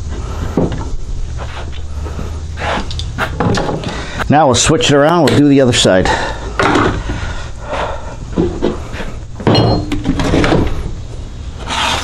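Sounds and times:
low steady hum: 0.0s - 12.0s
wood knocking and scraping: 2.7s - 4.0s.

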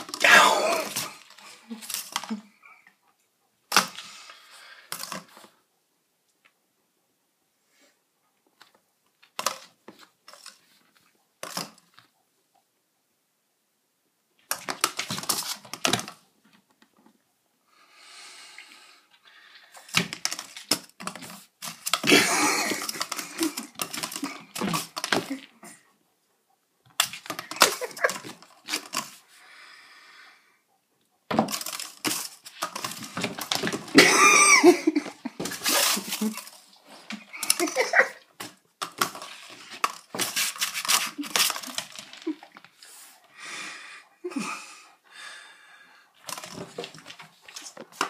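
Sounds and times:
breathy sounds: 0.0s - 3.0s, 28.7s - 30.8s, 42.2s - 47.0s
cardboard tube clattering on floor: 31.3s - 34.2s, 34.9s - 42.6s.

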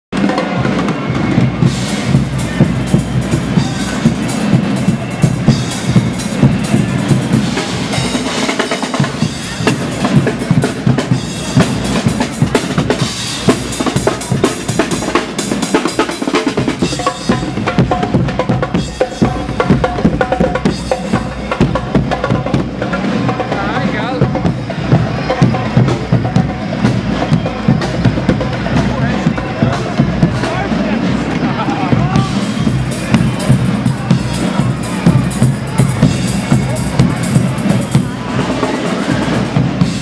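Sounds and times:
snare drums: 0.1s - 40.0s
held brass notes: 0.2s - 40.0s
bass drum: 9.0s - 38.4s.

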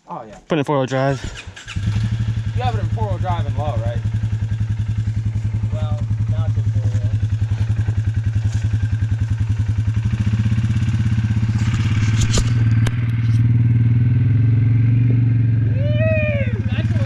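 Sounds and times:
second steady engine: 1.2s - 17.0s
engine idling with pulsing beat: 2.2s - 11.8s.

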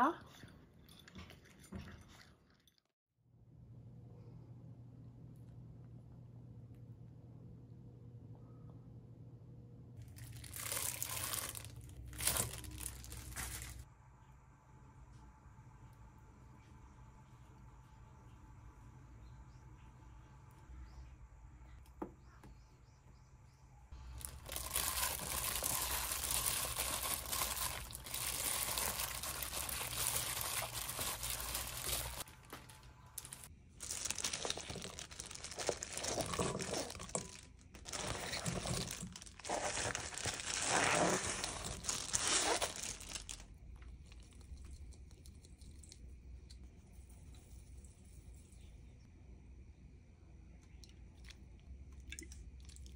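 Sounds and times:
plastic glove crinkling: 10.0s - 13.9s, 24.0s - 44.4s.

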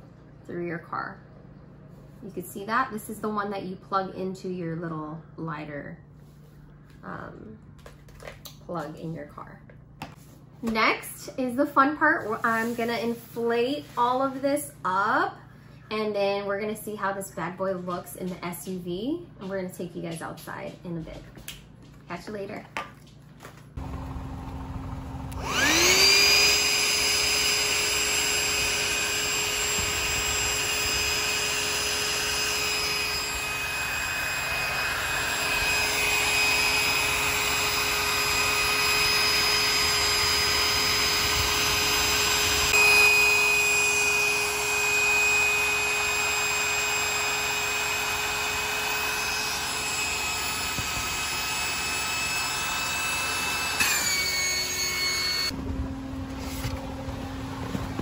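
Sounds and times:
electric air pump whirring: 23.8s - 55.6s.

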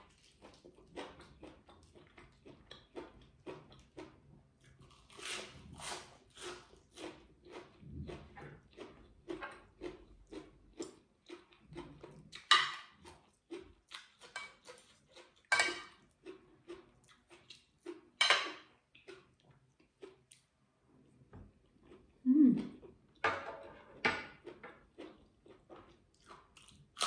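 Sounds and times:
close-up chewing: 0.0s - 23.2s, 24.2s - 27.0s
cutlery scraping ceramic plate: 12.4s - 13.2s, 14.2s - 14.9s, 15.5s - 16.0s, 18.2s - 18.7s, 23.2s - 24.8s.

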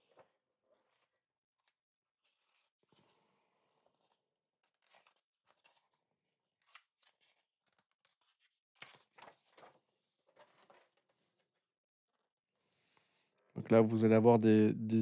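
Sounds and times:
book pages rustling and turning: 0.0s - 3.1s, 3.8s - 12.2s.

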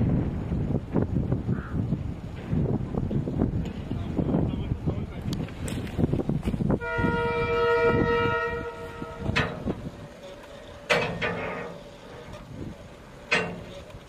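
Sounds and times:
locomotive horn chord: 6.8s - 9.7s
sharp ringing knocks: 10.8s - 11.8s, 13.3s - 13.9s.

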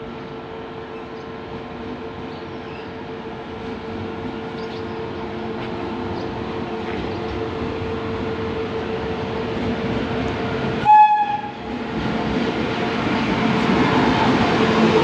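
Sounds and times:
electric locomotive rumbling: 0.0s - 15.0s
train horn blast: 10.8s - 11.6s.

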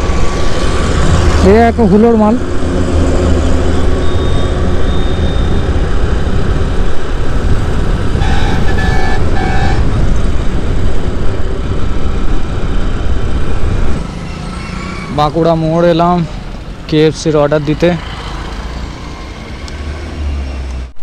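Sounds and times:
wind rush: 0.0s - 15.4s
horn toots: 8.2s - 10.0s.

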